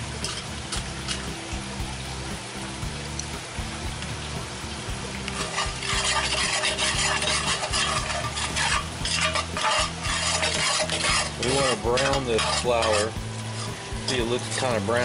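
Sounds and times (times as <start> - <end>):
roux sizzling in a pot: 0.0 - 15.0
metal spoon scraping a pot: 0.2 - 1.3, 5.3 - 15.0.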